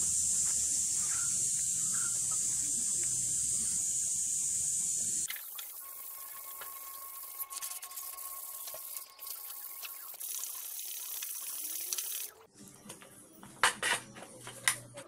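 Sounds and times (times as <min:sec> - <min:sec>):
faint hiss with thin tone: 0:00.0 - 0:12.3
spray paint hissing: 0:00.0 - 0:12.4.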